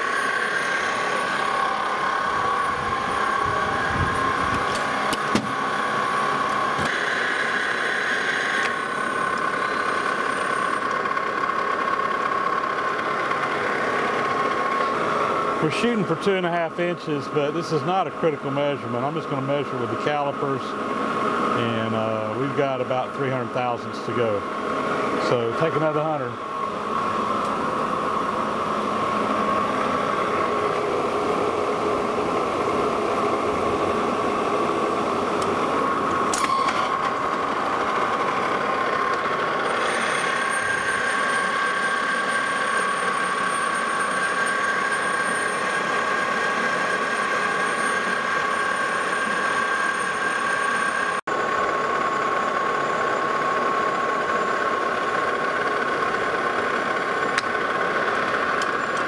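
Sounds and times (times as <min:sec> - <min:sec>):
higher cutting tone: 0:00.0 - 0:11.0
metal lathe whining: 0:00.0 - 0:59.0
sharp click: 0:36.3 - 0:36.9.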